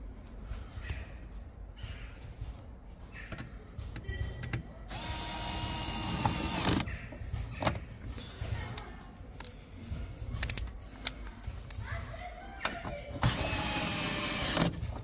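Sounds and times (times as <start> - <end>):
power tool motor whirring: 4.9 - 6.9, 13.2 - 14.8
clicks of parts being fitted: 10.4 - 11.8.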